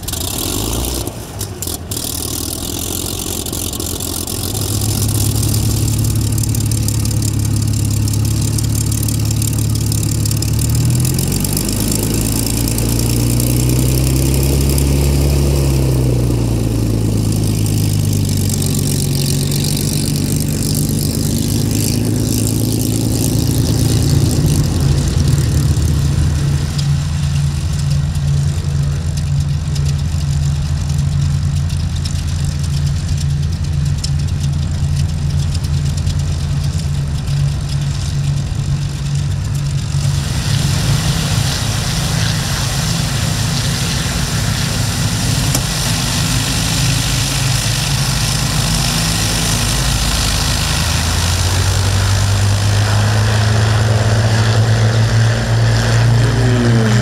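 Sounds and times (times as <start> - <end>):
piston aircraft engine running: 0.0 - 57.0
rushing hiss: 39.8 - 57.0.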